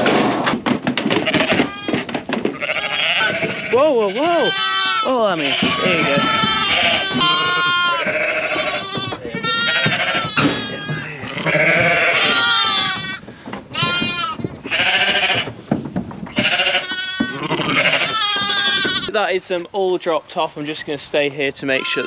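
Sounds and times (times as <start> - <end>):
sheep and lambs bleating: 1.2 - 15.6, 16.3 - 19.2, 21.7 - 22.0.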